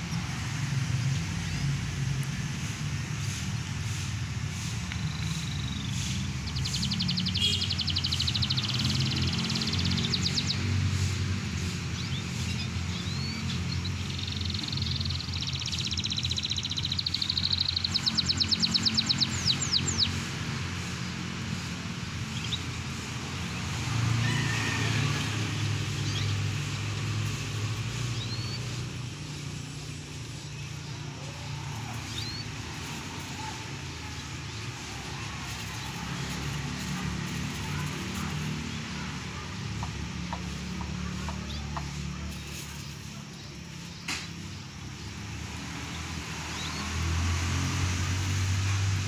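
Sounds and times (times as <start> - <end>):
canaries singing: 0.0 - 49.0
vehicle engine humming: 0.0 - 49.0
bird chirps: 4.9 - 10.7, 12.0 - 20.2.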